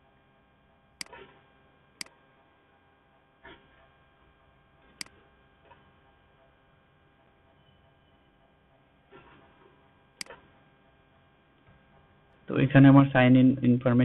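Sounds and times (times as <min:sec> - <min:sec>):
faint steady hum: 0:00.0 - 0:14.0
computer mouse clicking: 0:05.0 - 0:05.2, 0:10.2 - 0:10.4.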